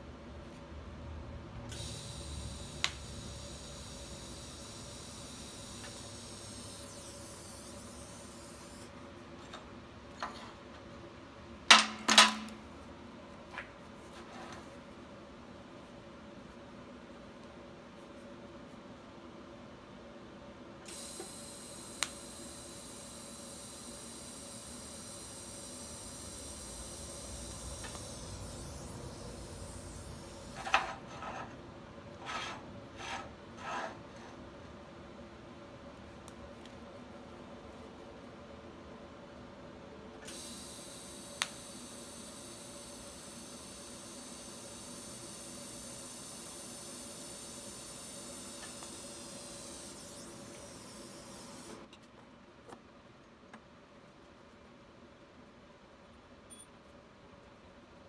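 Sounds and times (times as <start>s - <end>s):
welding arc hissing: 1.7s - 8.9s, 20.9s - 31.0s, 40.3s - 51.8s
metal scraping on steel table: 30.6s - 31.6s, 32.2s - 34.4s.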